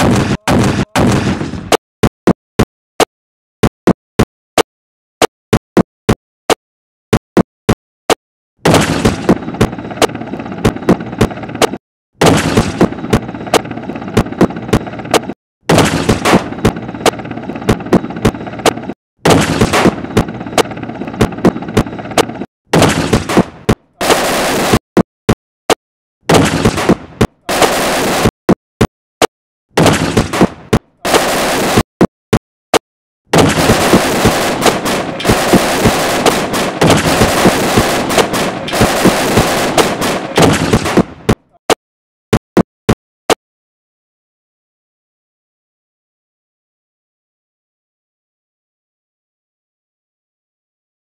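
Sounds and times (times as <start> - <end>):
rapid continuous gunfire: 0.0 - 1.8, 8.6 - 24.8, 26.3 - 28.4, 29.8 - 31.9, 33.3 - 41.6
rocket launcher blast: 0.0 - 1.8, 22.8 - 24.8, 26.3 - 28.3, 29.8 - 31.8, 33.3 - 41.2
single sharp gunshots: 0.0 - 1.8, 8.6 - 9.4, 12.2 - 12.9, 15.7 - 16.6, 19.2 - 20.2, 22.7 - 24.8, 26.3 - 28.3, 29.8 - 31.8, 33.3 - 41.4.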